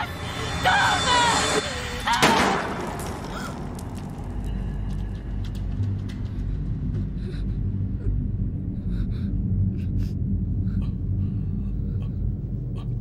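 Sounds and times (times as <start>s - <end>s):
low soundtrack rumble: 4.4s - 13.0s.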